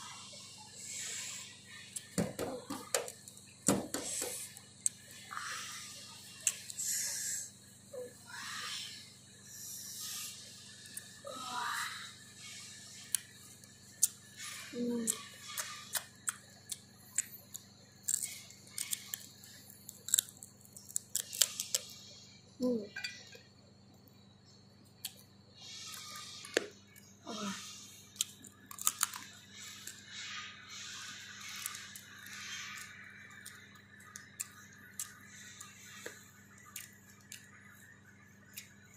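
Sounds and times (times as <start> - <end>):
chewing and crunching food: 12.4 - 22.0, 24.8 - 38.9.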